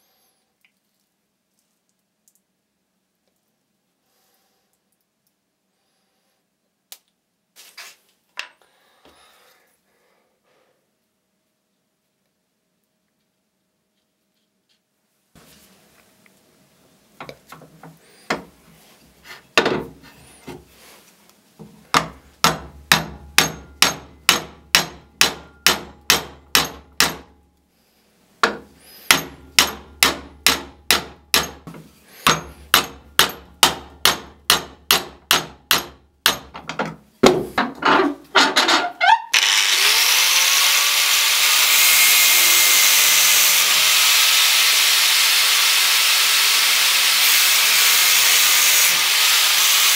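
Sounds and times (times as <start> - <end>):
hammer striking steel pin: 21.9 - 27.4, 28.4 - 36.7
angle grinder whining: 39.3 - 49.9.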